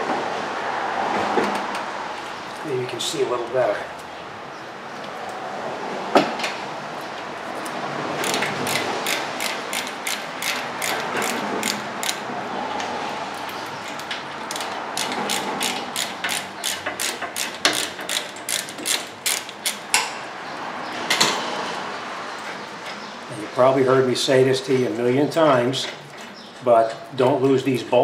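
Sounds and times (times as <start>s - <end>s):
hand ratchet clicking: 8.2s - 12.2s, 13.8s - 20.0s.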